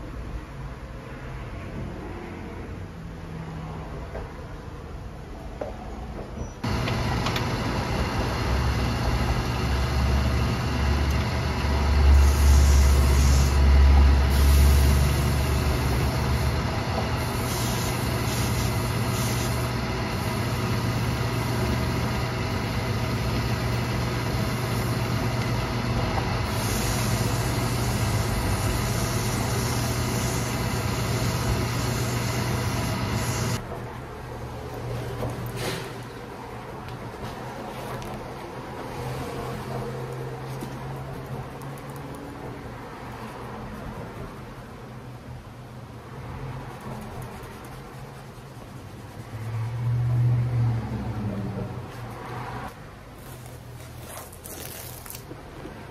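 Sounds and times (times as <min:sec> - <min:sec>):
shoe buffing machine humming: 0:06.6 - 0:33.6
buffing wheel on leather: 0:07.6 - 0:33.6.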